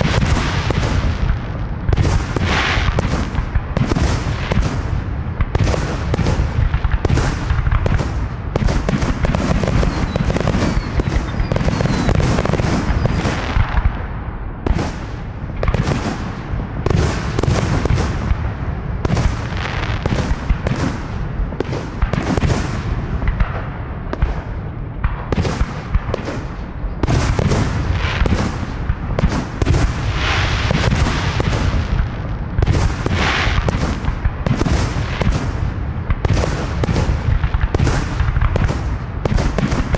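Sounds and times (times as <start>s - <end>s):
fireworks booming and crackling: 0.0s - 39.9s.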